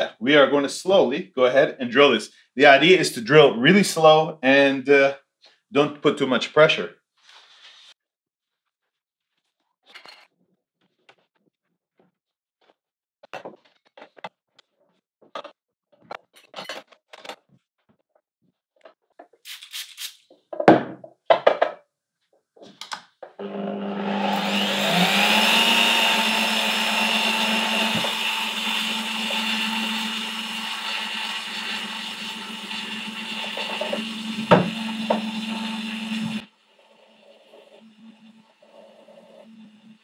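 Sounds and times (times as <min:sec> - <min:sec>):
drill press motor whine: 0:23.4 - 0:40.0.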